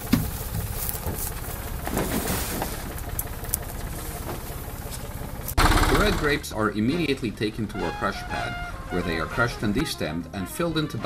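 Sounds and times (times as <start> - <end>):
plastic crates knocking: 0.0 - 6.1
tractor engine idling: 0.0 - 11.0.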